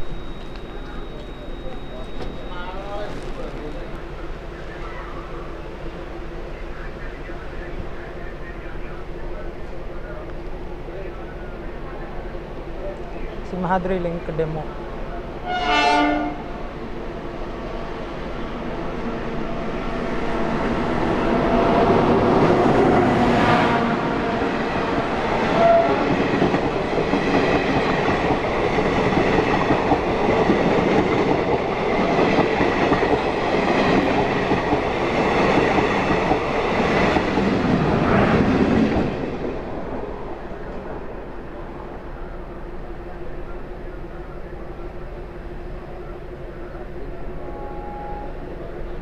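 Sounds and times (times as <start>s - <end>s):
train wheels rumbling on rails: 16.2s - 49.0s.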